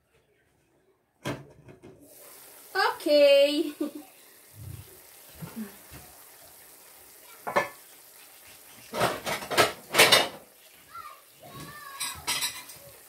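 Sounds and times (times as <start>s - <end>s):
food frying in a pan: 2.0s - 13.0s
dishes clattering: 7.4s - 7.8s, 8.9s - 10.5s, 11.6s - 13.0s
kitchenware clink: 7.5s - 7.8s, 9.0s - 10.4s, 12.0s - 12.8s.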